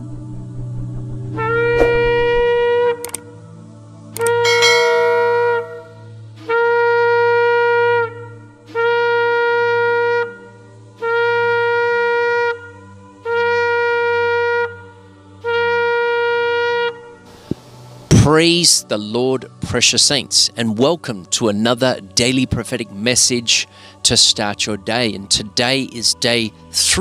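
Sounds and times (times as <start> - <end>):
shofar blasts: 4.2 - 17.2.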